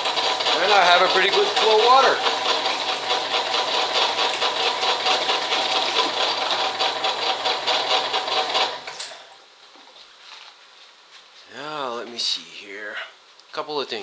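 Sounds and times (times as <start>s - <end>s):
water pump clattering: 0.0s - 9.0s.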